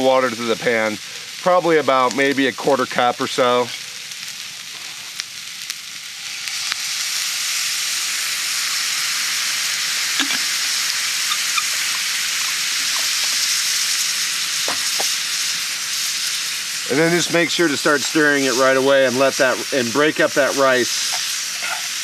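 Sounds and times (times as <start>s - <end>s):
food sizzling in a skillet: 0.0s - 22.0s.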